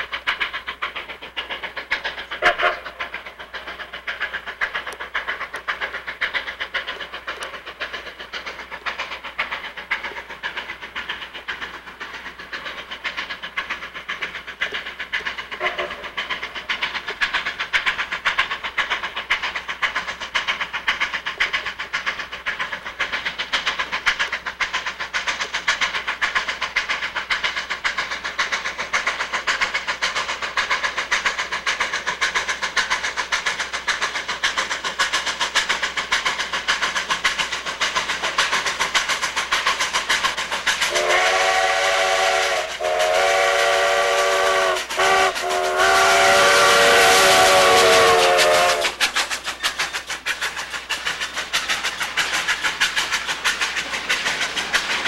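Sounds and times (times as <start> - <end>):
steam locomotive exhaust beat: 0.0 - 55.0
steam whistle blasts: 2.4 - 2.8, 40.9 - 49.0.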